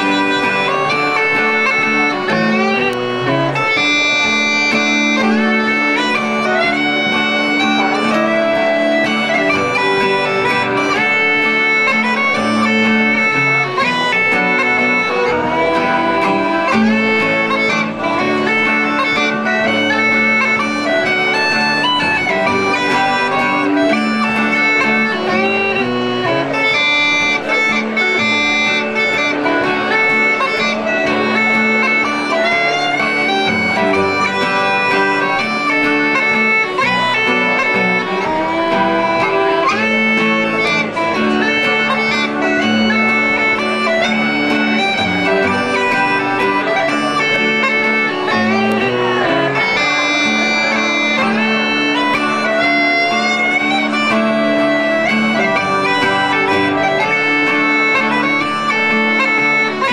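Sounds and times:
bagpipe chanter melody: 0.0 - 59.9
bagpipe drone: 0.0 - 59.9.

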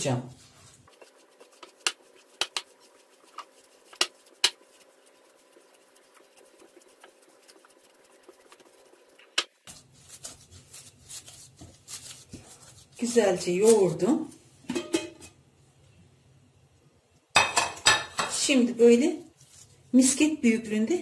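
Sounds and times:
hand kneading sticky mixture: 0.0 - 14.4.

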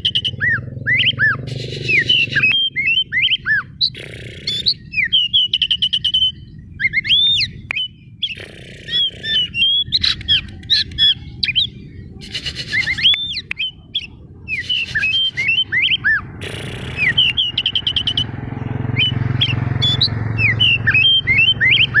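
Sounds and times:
bird singing loudly: 0.0 - 22.0.

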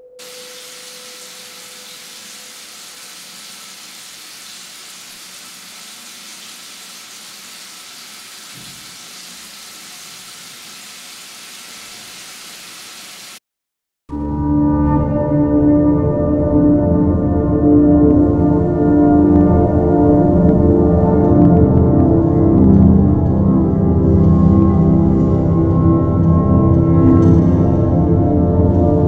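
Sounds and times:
steady white noise hiss: 0.2 - 13.4.

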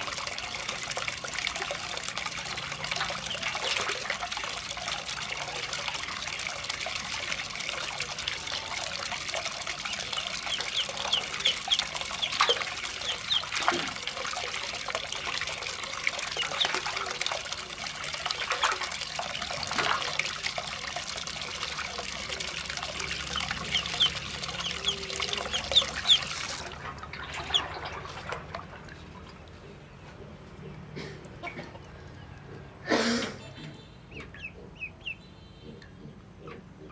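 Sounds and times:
tap water pouring into metal basin: 0.0 - 29.5
ducklings peeping: 2.9 - 4.0, 9.8 - 13.7, 15.1 - 17.0, 22.9 - 26.6, 27.2 - 28.0, 33.6 - 36.9.

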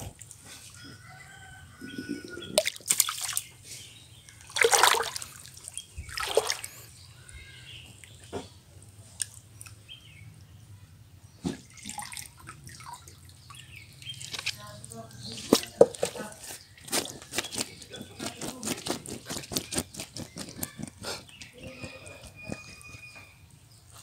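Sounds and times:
water lapping: 4.4 - 6.8, 11.7 - 22.8
net splashing through water: 4.5 - 6.8.

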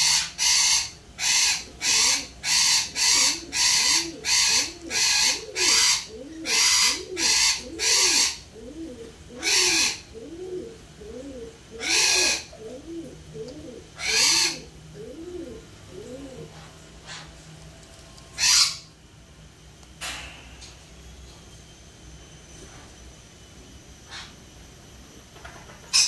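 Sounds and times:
parrots squawking: 0.0 - 8.5, 9.3 - 10.2, 11.8 - 12.8, 13.8 - 14.7, 16.4 - 17.4, 18.4 - 18.9
low hooting coos: 0.0 - 17.4.

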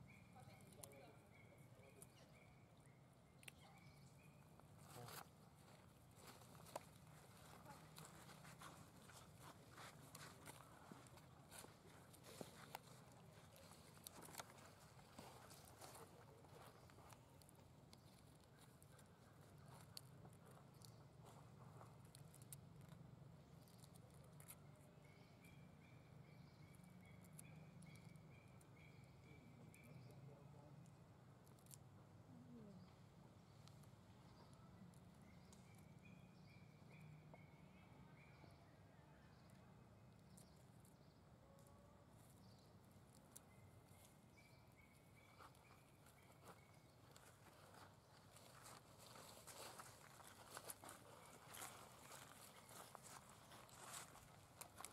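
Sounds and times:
faint high chirp: 0.0 - 5.2
dry leaves crackling underfoot: 4.8 - 20.0, 45.2 - 54.9.

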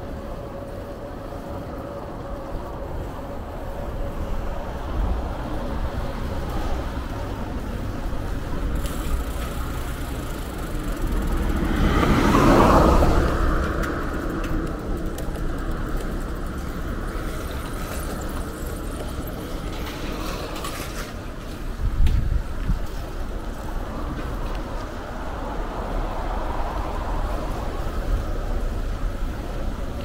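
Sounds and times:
steady low traffic rumble: 0.0 - 30.0
vehicle passing: 2.8 - 21.0.

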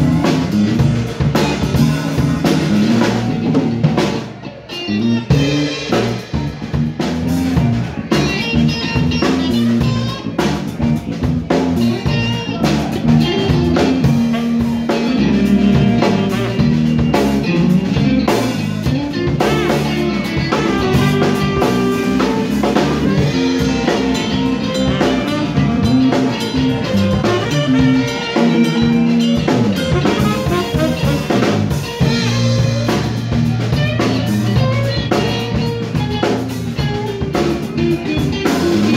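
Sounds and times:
drum kit: 0.0 - 38.9
electric bass: 0.0 - 38.9
electric guitar: 0.0 - 38.9
tenor saxophone: 12.0 - 18.0, 18.8 - 36.2.

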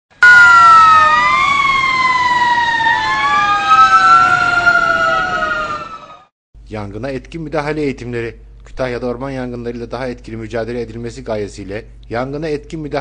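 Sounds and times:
fire truck sirens: 0.1 - 6.3.

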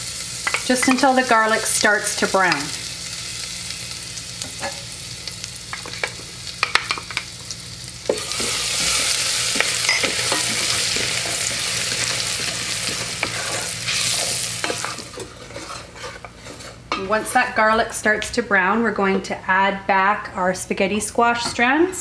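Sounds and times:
garlic sizzling in a pot: 0.0 - 17.6.

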